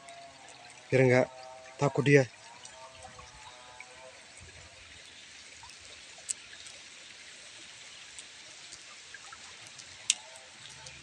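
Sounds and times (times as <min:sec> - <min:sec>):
water flowing and trickling: 0:00.0 - 0:11.0.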